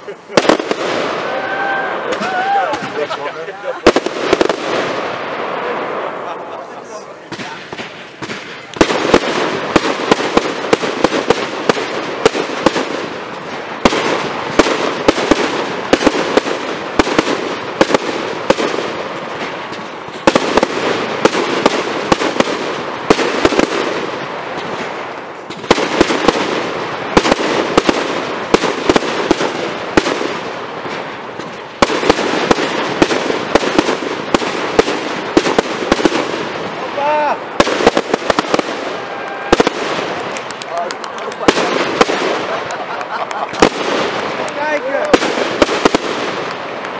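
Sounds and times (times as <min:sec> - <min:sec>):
fireworks crackling: 0:00.0 - 0:46.9
firework shells bursting: 0:07.3 - 0:46.9.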